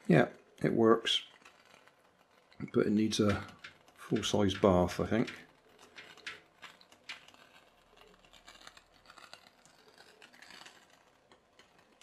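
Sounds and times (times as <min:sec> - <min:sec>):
pop-pop boat clicking: 0:03.1 - 0:07.4.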